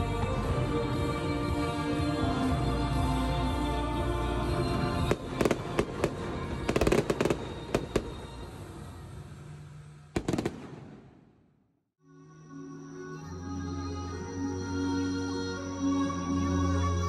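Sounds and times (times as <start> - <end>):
fireworks bangs: 5.0 - 11.6.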